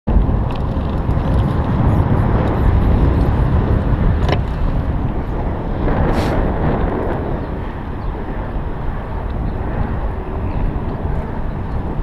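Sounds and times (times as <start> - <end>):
tyres rolling on pavement: 0.1 - 9.2
wind rushing over microphone: 0.1 - 12.0.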